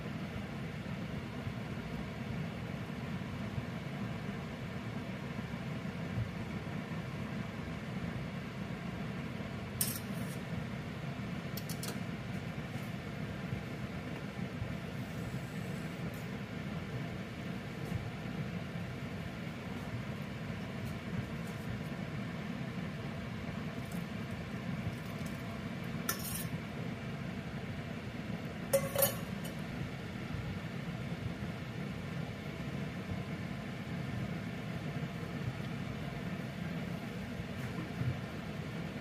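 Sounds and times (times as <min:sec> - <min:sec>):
steady low hum: 0:00.0 - 0:39.0
utensils clinking on steel pot: 0:26.1 - 0:26.5, 0:28.7 - 0:29.6.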